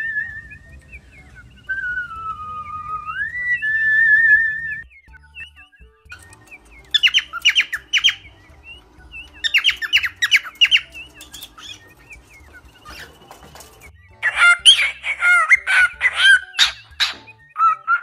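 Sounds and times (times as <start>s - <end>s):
parrots chirping and squawking: 6.1s - 18.0s.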